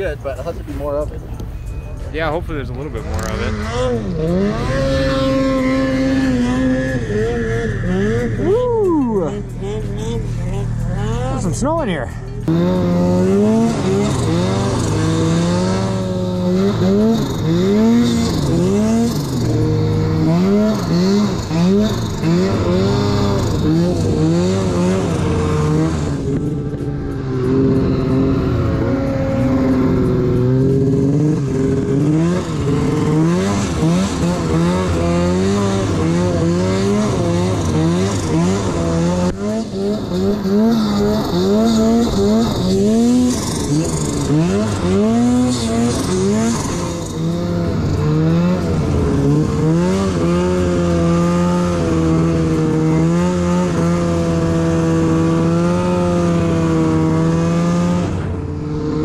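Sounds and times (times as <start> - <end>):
snowmobile engine revving: 2.2 - 59.0.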